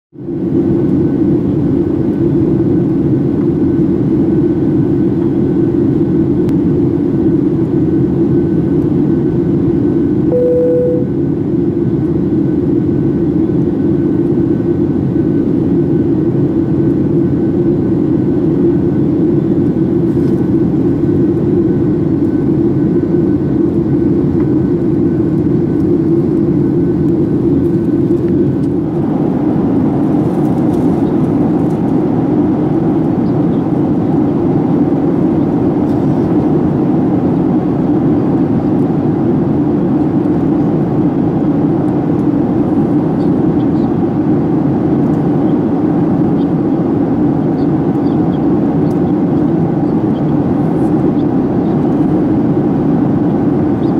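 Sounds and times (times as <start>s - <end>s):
airplane cabin engine rush: 0.2s - 53.9s
short single tone: 10.3s - 11.2s.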